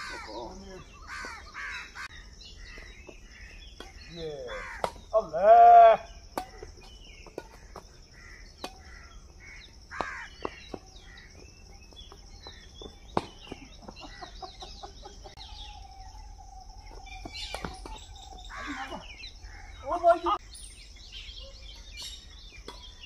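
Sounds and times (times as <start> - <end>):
birds chirping: 0.0 - 23.0
rackets hitting shuttlecock: 3.8 - 4.0, 4.7 - 5.2, 6.3 - 9.0, 13.1 - 13.9, 17.3 - 18.2, 22.5 - 23.0.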